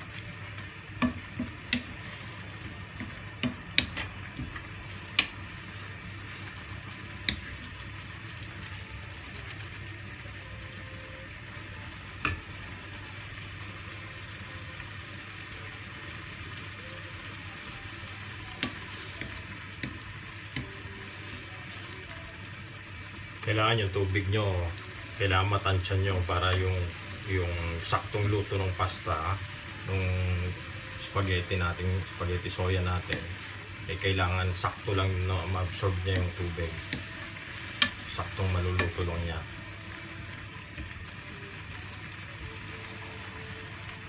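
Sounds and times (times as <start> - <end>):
noodles sizzling in a wok: 0.0 - 44.0
wooden spatula tapping metal pan: 0.9 - 2.0, 2.9 - 5.4.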